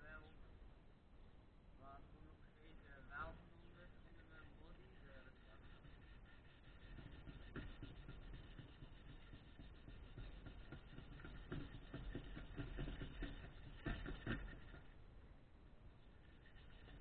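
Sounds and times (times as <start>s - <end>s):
sandpaper scratching metal: 3.9s - 15.0s, 16.0s - 17.0s.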